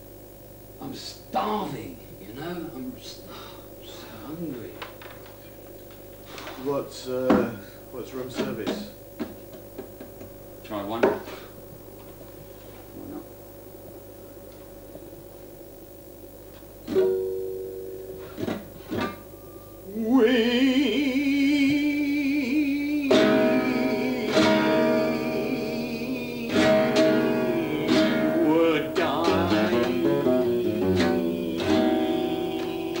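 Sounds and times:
acoustic guitar: 0:16.8 - 0:33.0
man singing held notes: 0:19.9 - 0:33.0.

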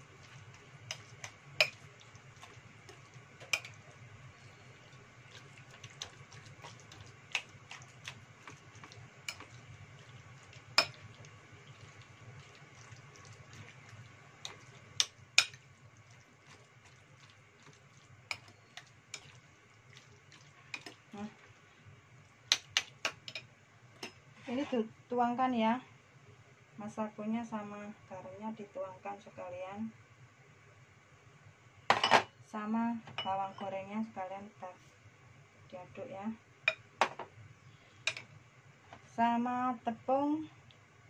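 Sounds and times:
spoon mashing tofu: 0:00.0 - 0:04.1, 0:04.9 - 0:21.5, 0:22.5 - 0:24.2
spoon clinking on ceramic bowl: 0:03.4 - 0:03.8, 0:10.8 - 0:11.0.

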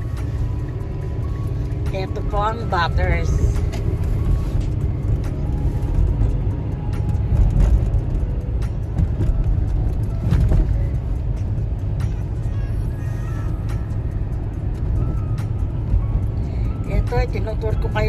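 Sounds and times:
car cabin road rumble: 0:00.0 - 0:18.0
music playing: 0:00.0 - 0:18.0.

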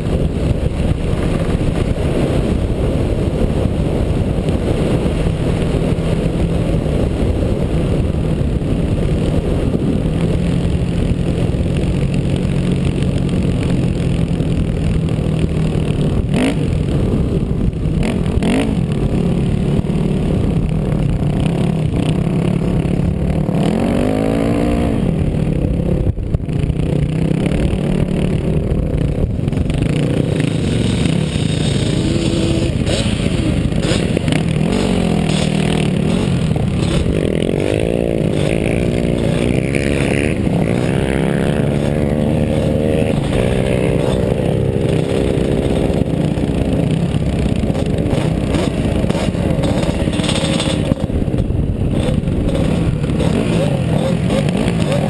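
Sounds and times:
dirt bike engine revving: 0:09.0 - 0:16.9, 0:17.8 - 0:25.8, 0:29.5 - 0:55.0.

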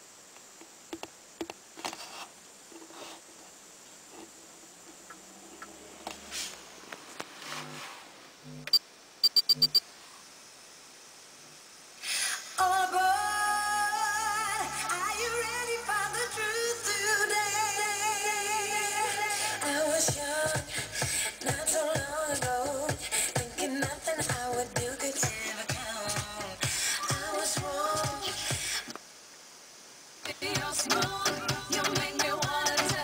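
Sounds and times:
short high electronic beeps: 0:08.6 - 0:09.8
song with singing from speaker: 0:12.4 - 0:29.0, 0:30.2 - 0:33.0.

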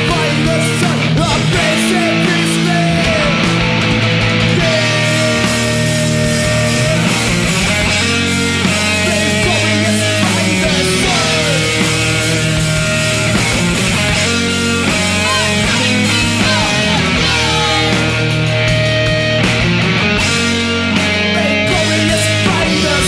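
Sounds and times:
electric guitar chords: 0:00.0 - 0:23.0
punk band playing: 0:00.0 - 0:23.0
shouted vocals: 0:04.4 - 0:11.8, 0:14.1 - 0:18.3.

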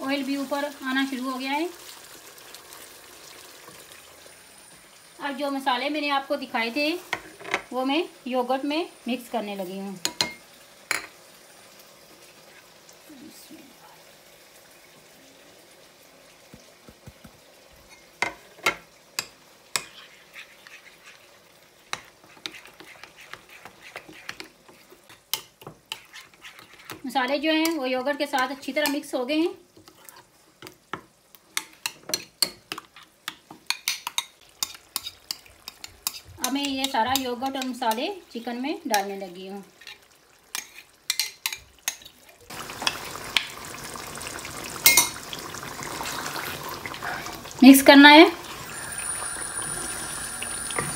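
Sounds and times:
food sizzling in pan: 0:00.0 - 0:50.9
spoon scraping and tapping: 0:17.8 - 0:21.2, 0:21.9 - 0:27.0, 0:31.6 - 0:37.8, 0:39.9 - 0:42.0, 0:44.9 - 0:45.2
spoon scraping glass bowl: 0:19.8 - 0:21.3, 0:21.9 - 0:25.0, 0:25.9 - 0:27.0
metal spoon clinking glass bowl: 0:44.8 - 0:45.2.

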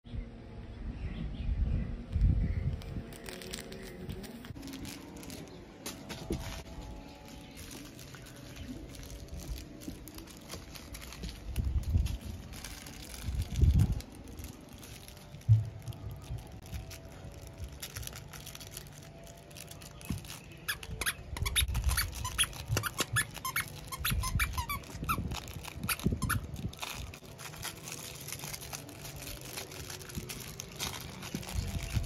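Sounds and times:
dog toy squeaking: 0:20.6 - 0:27.1.

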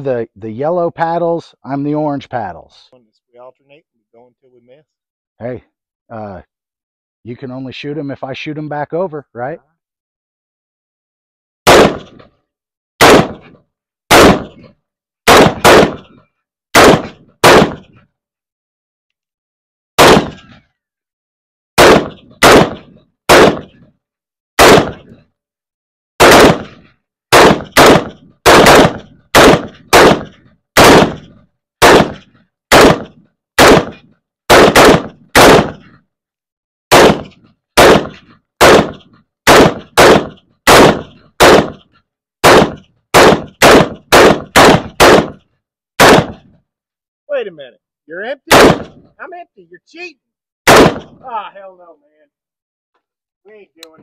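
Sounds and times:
rifle shots: 0:11.6 - 0:12.3, 0:13.0 - 0:14.7, 0:15.3 - 0:18.0, 0:20.0 - 0:20.6, 0:21.8 - 0:23.8, 0:24.6 - 0:25.2, 0:26.2 - 0:36.0, 0:36.9 - 0:45.4, 0:46.0 - 0:46.5, 0:48.5 - 0:49.1, 0:50.7 - 0:51.2.

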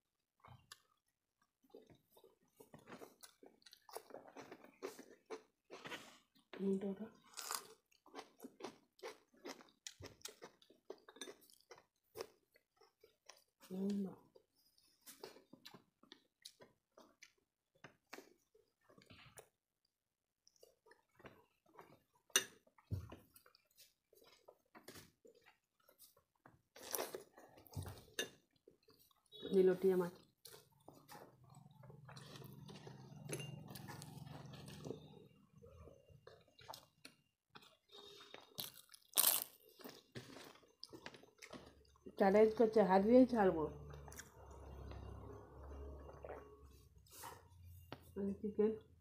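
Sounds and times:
chewing: 0:00.4 - 0:06.6, 0:07.2 - 0:29.4, 0:30.1 - 0:42.2, 0:43.8 - 0:48.1
loud crunching bite: 0:38.5 - 0:39.6.

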